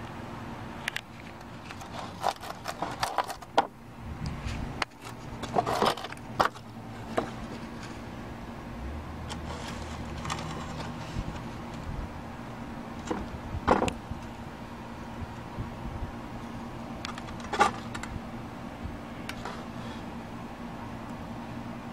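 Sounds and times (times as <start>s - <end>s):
steady low hum: 0.0s - 21.9s
handling clicks and scrapes: 0.8s - 8.2s, 9.2s - 11.9s, 17.0s - 18.2s, 19.2s - 20.1s.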